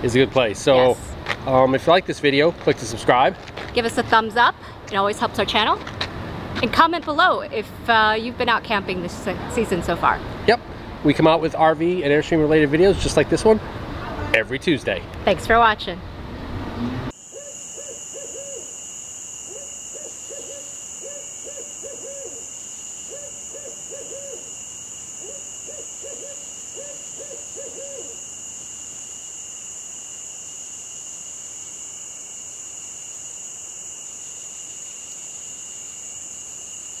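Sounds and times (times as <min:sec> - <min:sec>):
night insects chorus: 0:17.1 - 0:37.0
owl hooting: 0:17.2 - 0:18.8, 0:19.5 - 0:24.6, 0:25.2 - 0:28.2.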